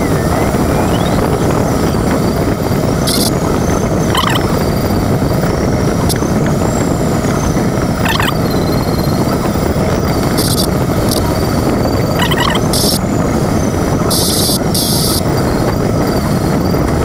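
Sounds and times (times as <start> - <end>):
faint high rising and falling tone: 0.0 - 9.4, 11.9 - 12.8
air rushing around glider cockpit: 0.0 - 17.0.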